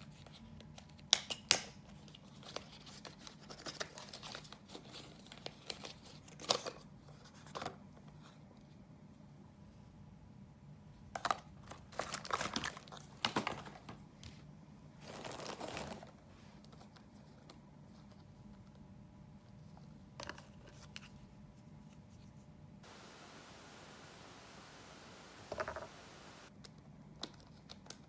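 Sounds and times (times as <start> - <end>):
plastic packaging crinkling: 15.0 - 16.1
faint low hum: 16.0 - 27.7.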